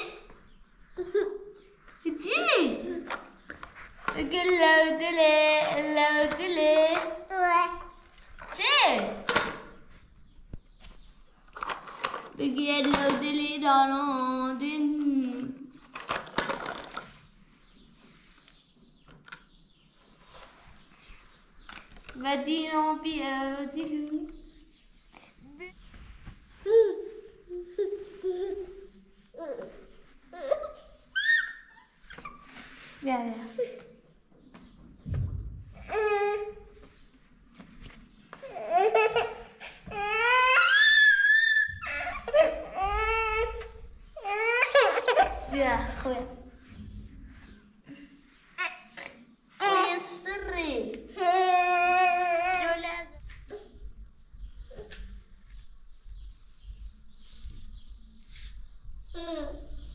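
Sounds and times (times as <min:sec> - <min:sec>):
baby squealing: 0:30.4 - 0:32.4, 0:39.9 - 0:43.6
baby laughing: 0:38.4 - 0:43.4, 0:44.2 - 0:45.5.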